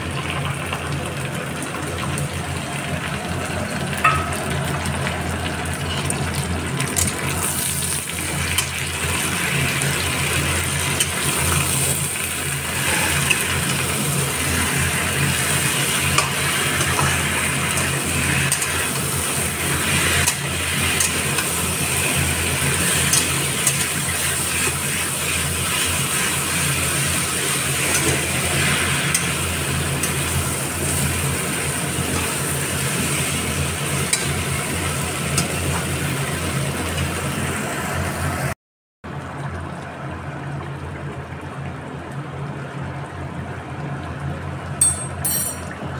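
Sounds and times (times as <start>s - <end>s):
vegetables sizzling in a pan: 2.6s - 38.4s.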